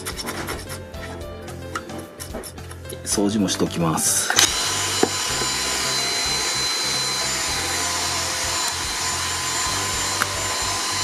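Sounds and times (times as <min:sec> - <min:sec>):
handheld vacuum cleaner running: 0:04.2 - 0:11.0.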